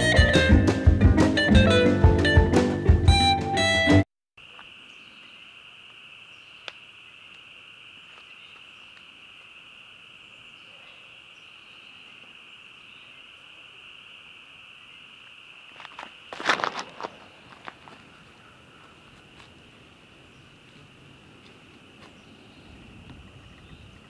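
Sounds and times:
music: 0:00.0 - 0:04.1
insects trilling: 0:04.4 - 0:24.0.

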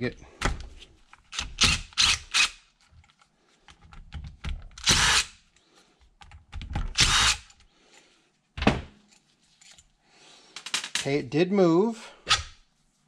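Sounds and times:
cordless impact driver bursts: 0:04.8 - 0:05.3, 0:06.9 - 0:07.5.

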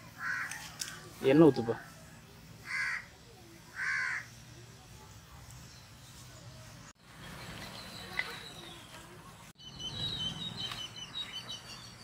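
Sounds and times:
bird calling: 0:02.6 - 0:04.5, 0:07.1 - 0:12.0.

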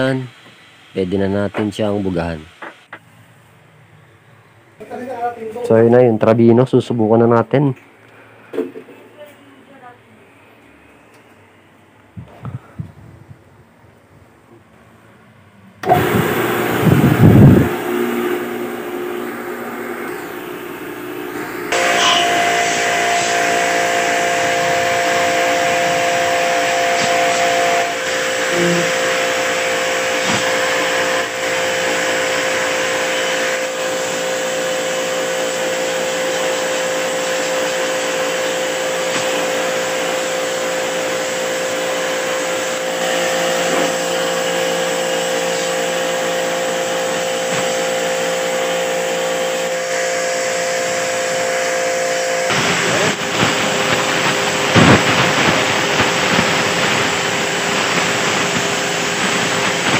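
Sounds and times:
pressure washer motor whine: 0:15.8 - 0:59.9
water jet spraying coil: 0:15.8 - 0:59.9.

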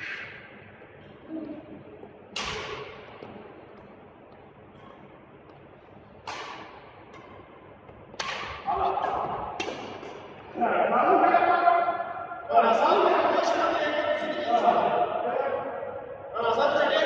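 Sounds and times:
racket striking shuttlecock: 0:02.3 - 0:03.4, 0:04.8 - 0:10.4.

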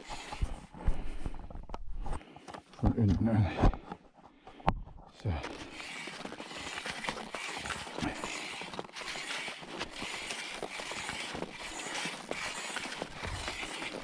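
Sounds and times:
skis scraping on snow: 0:00.0 - 0:00.6, 0:05.4 - 0:14.0
poles crunching into snow: 0:05.3 - 0:14.0.

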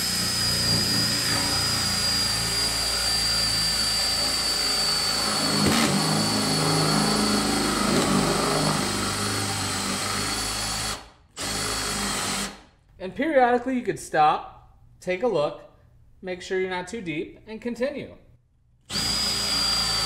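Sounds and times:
high motor whine: 0:00.0 - 0:10.0
cordless drill boring into wood: 0:00.0 - 0:12.6, 0:18.9 - 0:20.0.

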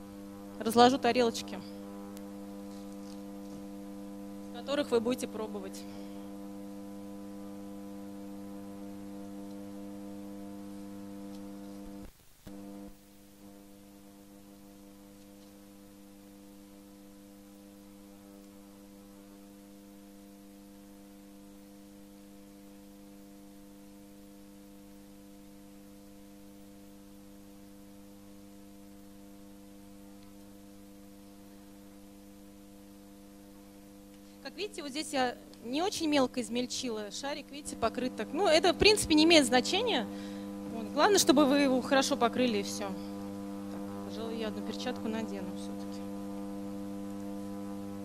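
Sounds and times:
electrical mains hum: 0:00.0 - 0:48.0.

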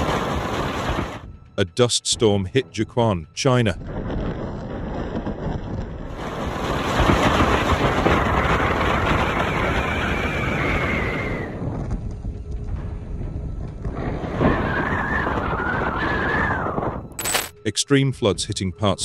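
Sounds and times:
wind buffeting microphone: 0:03.8 - 0:17.2.

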